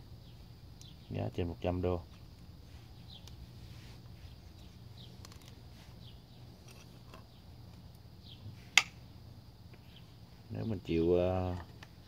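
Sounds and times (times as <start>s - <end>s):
low steady hum: 0.0s - 12.0s
faint bird chirps: 0.1s - 1.6s, 2.6s - 11.1s.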